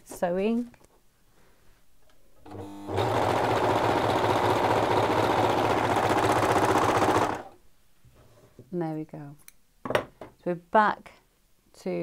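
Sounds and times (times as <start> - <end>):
overlocker sewing machine running: 2.5 - 7.6.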